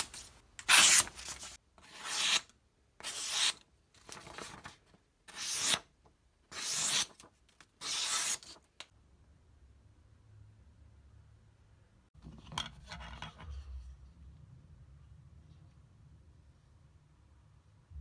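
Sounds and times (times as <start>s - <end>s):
knife slicing paper: 0.0s - 4.7s, 6.5s - 8.6s.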